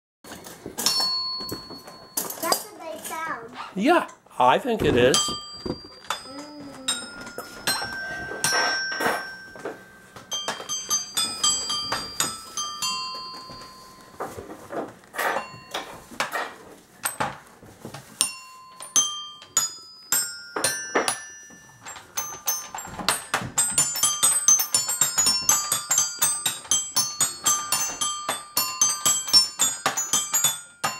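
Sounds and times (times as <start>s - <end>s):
toy xylophone notes: 5.1s - 14.3s.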